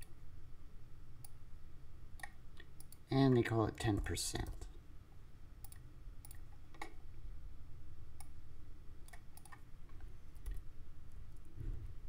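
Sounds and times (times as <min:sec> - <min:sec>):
low room hum: 0:00.0 - 0:12.0
keyboard and mouse clicks: 0:02.2 - 0:03.0, 0:05.6 - 0:07.0, 0:09.0 - 0:10.7.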